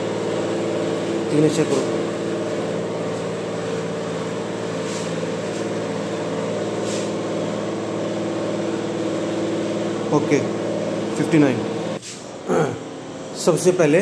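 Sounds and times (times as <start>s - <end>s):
steady machine hum: 0.0s - 14.0s
faint short hisses: 6.8s - 7.2s, 12.0s - 12.3s.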